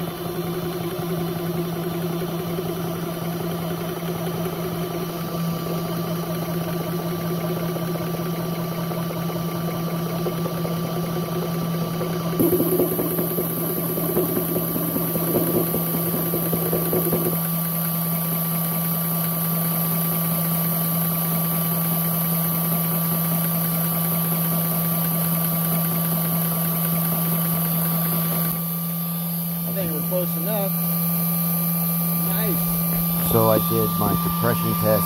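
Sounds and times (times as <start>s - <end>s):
air compressor motor hum: 0.0s - 35.0s
compressor pumping knock: 9.7s - 18.7s, 31.2s - 35.0s.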